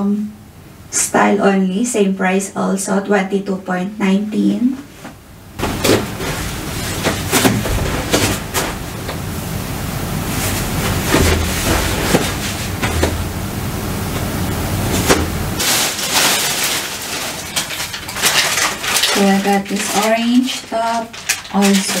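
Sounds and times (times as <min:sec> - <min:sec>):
clothing rustling: 0:04.7 - 0:09.4, 0:10.0 - 0:22.0
small clicks and crackles: 0:15.6 - 0:22.0.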